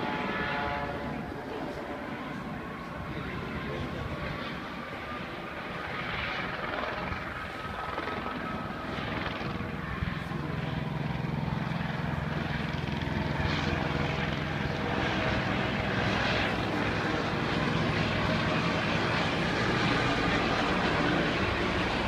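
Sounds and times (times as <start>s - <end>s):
engine drone: 6.7s - 22.0s.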